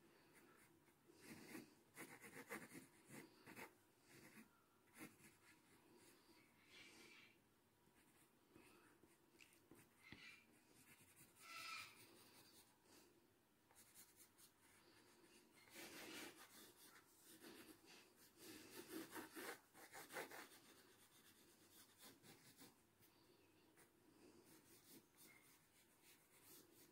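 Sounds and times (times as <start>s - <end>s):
pencil scratching on paper: 0.2s - 6.2s, 9.6s - 12.7s, 13.7s - 22.8s, 23.8s - 26.9s.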